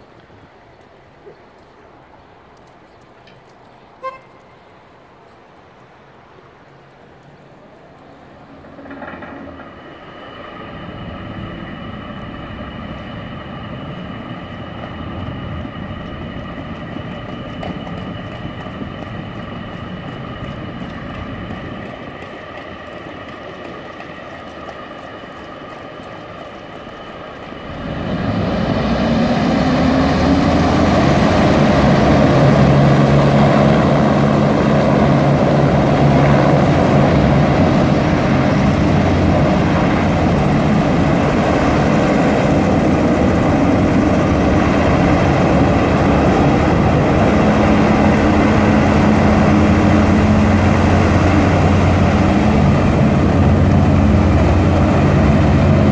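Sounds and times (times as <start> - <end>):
hovercraft machine noise with whine: 2.0 - 55.9
deep steady propeller hum: 7.5 - 55.9.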